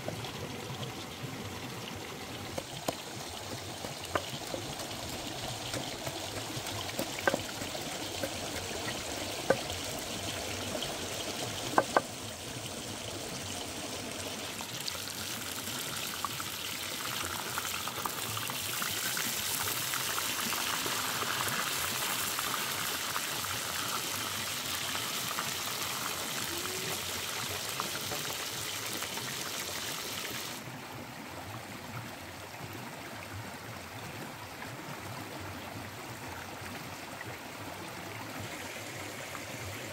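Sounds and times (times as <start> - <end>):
stream flowing: 0.0 - 39.9
fish sizzling in hot oil: 15.0 - 30.6.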